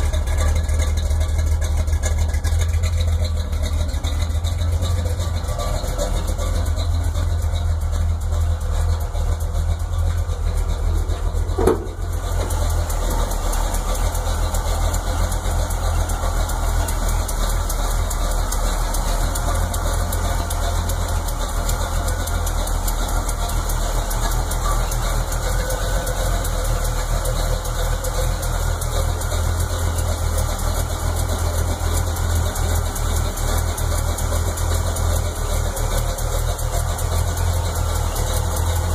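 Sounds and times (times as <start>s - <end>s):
pickup engine idling: 0.0s - 38.9s
short thump: 11.5s - 12.2s.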